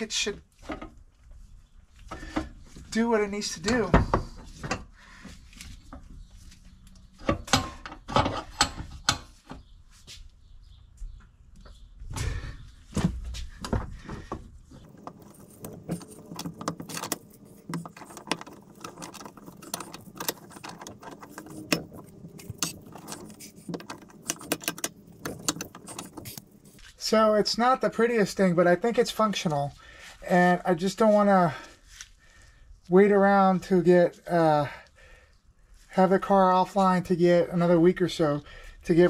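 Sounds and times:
metal clinks and knocks: 0:14.8 - 0:26.9.

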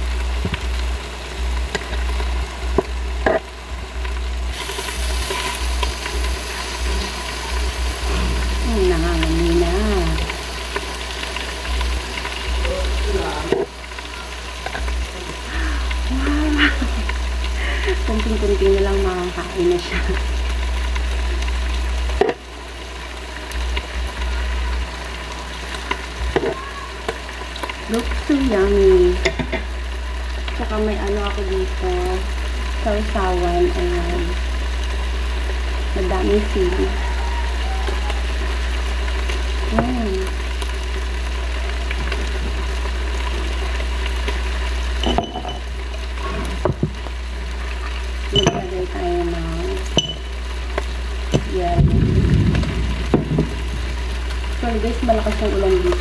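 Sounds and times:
steady low hum: 0:00.0 - 0:26.3, 0:27.3 - 0:56.0
squid sizzling on a grill: 0:00.0 - 0:56.0
tongs and tableware clicking: 0:50.0 - 0:50.2.

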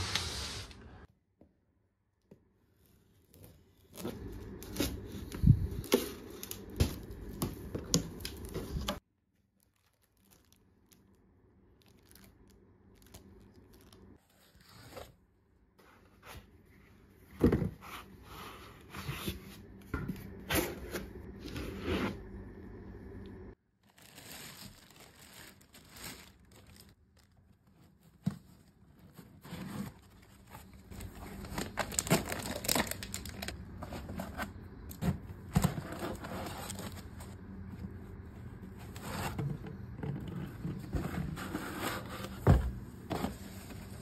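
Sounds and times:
foam and cardboard crinkling: 0:03.2 - 0:15.2, 0:23.8 - 0:44.0.

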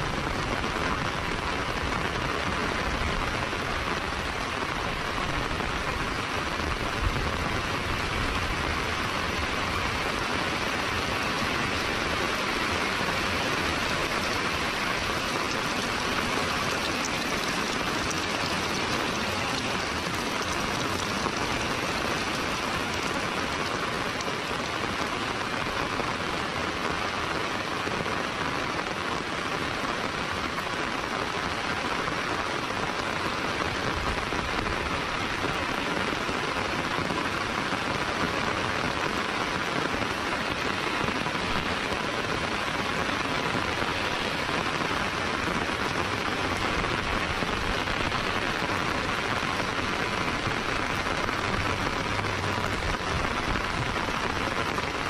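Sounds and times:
heavy rain on pavement: 0:00.0 - 0:55.0.

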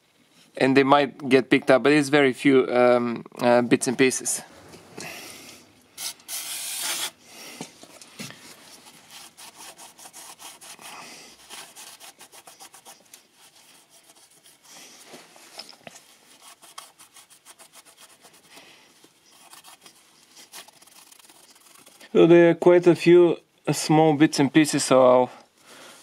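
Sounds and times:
aerosol spray hiss: 0:06.0 - 0:07.2
rag rubbing on metal: 0:08.8 - 0:15.2, 0:19.2 - 0:22.1.

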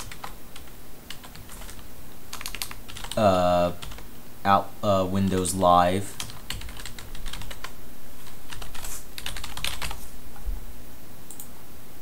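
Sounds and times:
typing on keyboard: 0:00.0 - 0:03.2, 0:03.8 - 0:04.0, 0:06.2 - 0:10.0.

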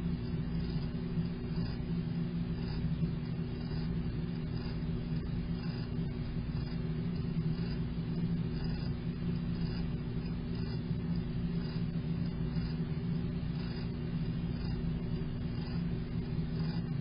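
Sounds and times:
constant hum: 0:00.0 - 0:17.0
faint soft pulses: 0:00.0 - 0:17.0.

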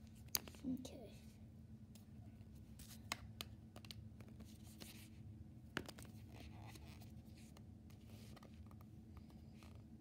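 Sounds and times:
low steady hum: 0:00.0 - 0:10.0
soft rustling and scraping: 0:05.9 - 0:10.0.

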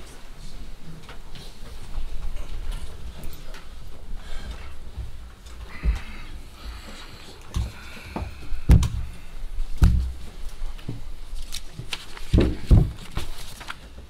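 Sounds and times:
chairs shifting: 0:01.0 - 0:11.1
thumps on wooden platform: 0:12.3 - 0:13.0.

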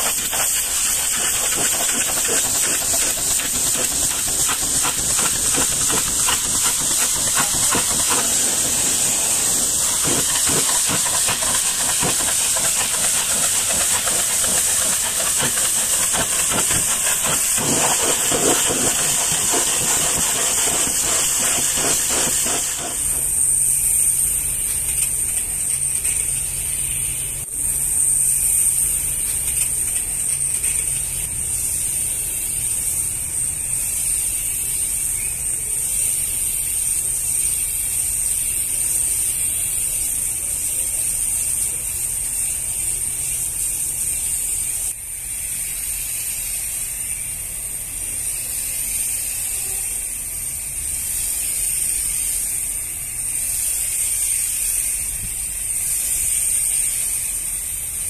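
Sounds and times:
pressure washer jet spraying: 0:00.0 - 0:25.2.

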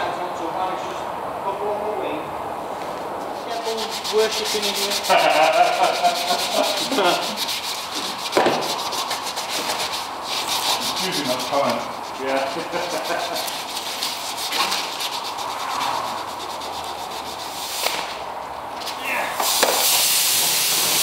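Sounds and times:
sandpaper rubbing on metal: 0:03.3 - 0:18.2, 0:19.4 - 0:21.0.

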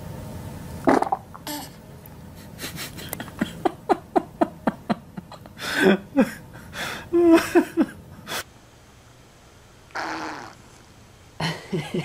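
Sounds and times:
person laughing: 0:02.4 - 0:08.4, 0:11.4 - 0:12.0.

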